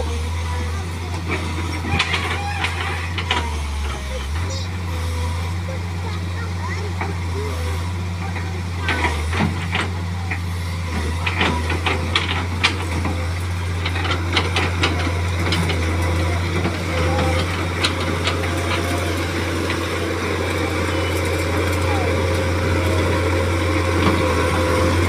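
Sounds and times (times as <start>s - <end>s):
diesel engine humming: 0.0s - 25.0s.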